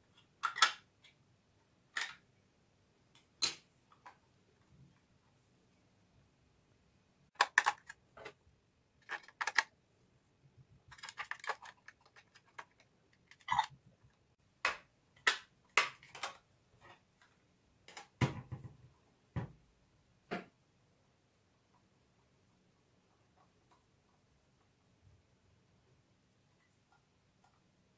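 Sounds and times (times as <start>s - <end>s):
plastic toy clicks and rattles: 7.4s - 8.4s, 9.0s - 9.7s, 10.9s - 13.7s.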